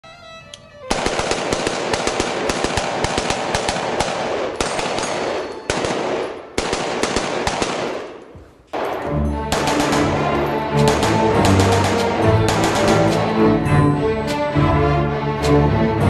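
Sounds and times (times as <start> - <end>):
rifle firing rapid shots: 0.9 - 13.3.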